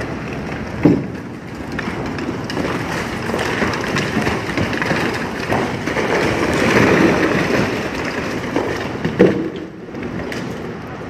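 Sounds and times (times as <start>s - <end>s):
debris crashing down: 0.0s - 10.7s.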